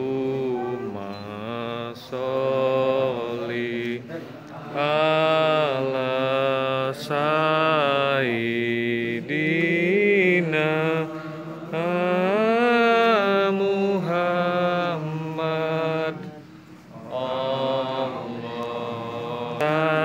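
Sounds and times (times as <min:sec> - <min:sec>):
voices chanting: 0:00.0 - 0:20.0
breaths: 0:11.0 - 0:11.7, 0:16.4 - 0:16.9.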